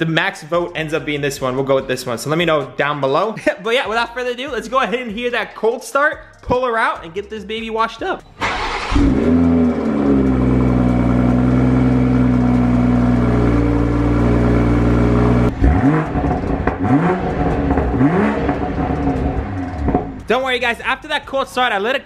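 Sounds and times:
car engine revving: 8.4 - 20.4
exhaust burbles: 8.4 - 20.4
car engine idling: 8.4 - 20.5.

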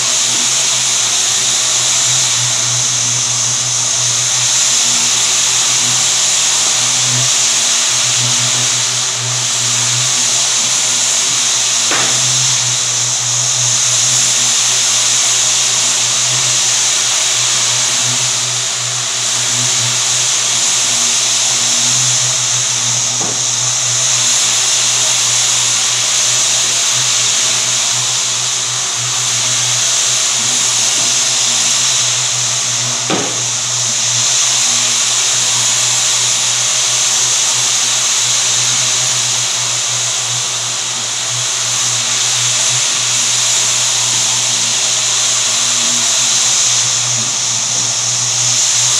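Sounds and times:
buffer pad hissing on wood: 0.0 - 48.9
floor buffer humming: 9.5 - 14.5, 20.2 - 25.6, 30.5 - 35.2.

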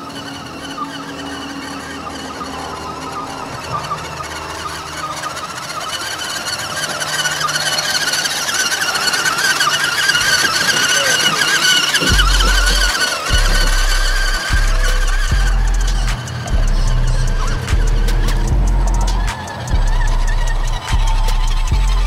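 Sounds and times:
electric motor whining: 0.0 - 22.0
toy truck driving through water: 0.0 - 22.0
background music with bass: 11.0 - 22.0.

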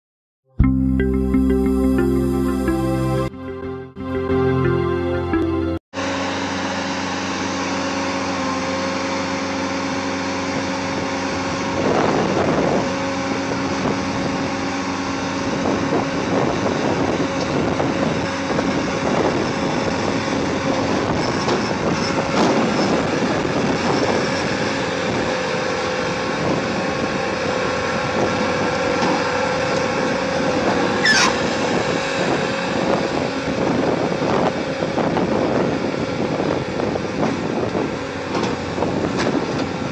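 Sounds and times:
diesel engine running: 0.6 - 39.9
high squeak: 31.0 - 31.6.

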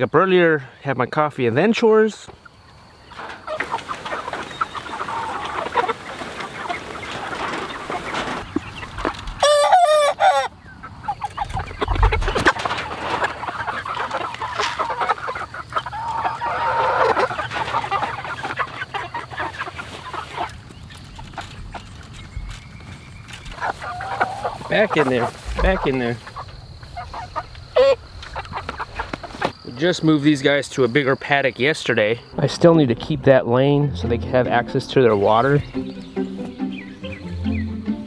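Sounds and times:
chickens clucking: 0.1 - 38.0
chicken's loud wavering call: 9.4 - 19.6.

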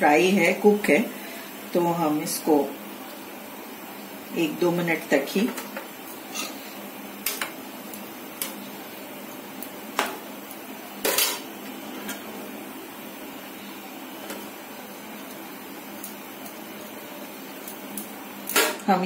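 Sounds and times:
metal spoon scraping metal pan: 6.3 - 6.6.

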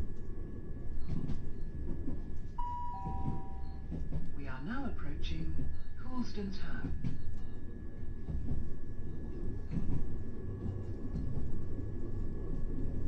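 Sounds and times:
train wheels rumbling on rails: 0.0 - 13.0
thin high tone: 2.6 - 3.8.

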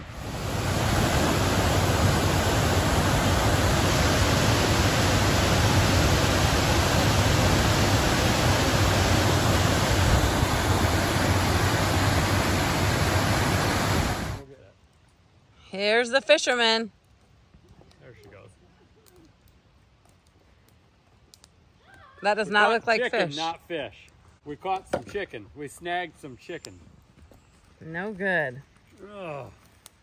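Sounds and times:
waterfall rushing over boulders: 0.0 - 14.4.

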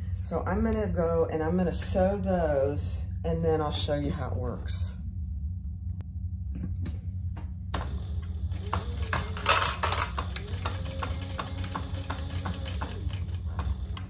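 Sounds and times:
sewing machine motor humming: 7.8 - 14.0.

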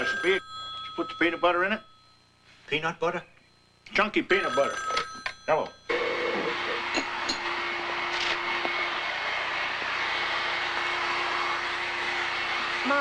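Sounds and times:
faint hum: 0.0 - 6.9.

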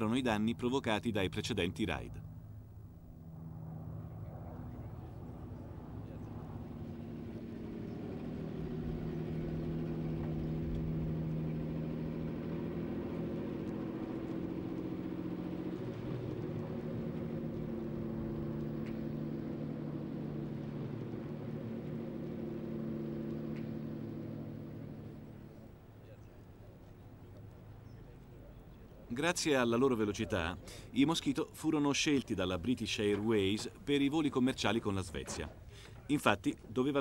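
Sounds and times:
piston engine droning: 0.0 - 29.1.

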